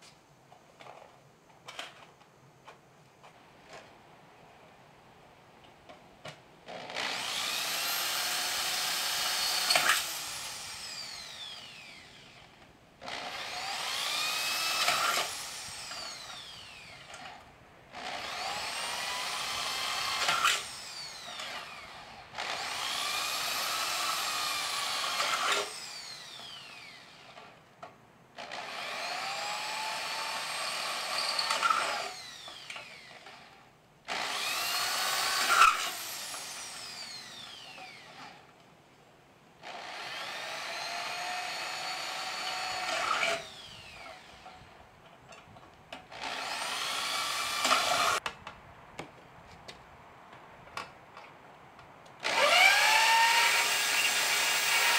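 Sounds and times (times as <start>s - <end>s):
electric drill whining through metal: 6.7s - 27.6s, 28.4s - 38.5s, 39.6s - 44.8s, 46.0s - 48.3s, 52.2s - 54.9s
sharp drill screech: 6.8s - 12.4s, 13.2s - 17.1s, 18.1s - 27.4s, 28.6s - 33.2s, 34.1s - 38.4s, 39.8s - 44.4s, 46.2s - 48.2s, 52.2s - 54.9s.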